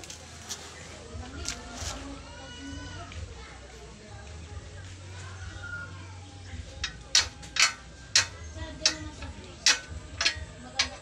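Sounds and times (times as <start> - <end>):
metal clinks of bending rod: 6.8 - 11.0.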